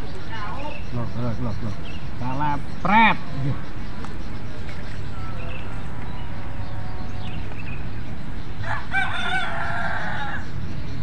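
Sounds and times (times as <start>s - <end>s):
rooster crowing: 8.6s - 10.5s.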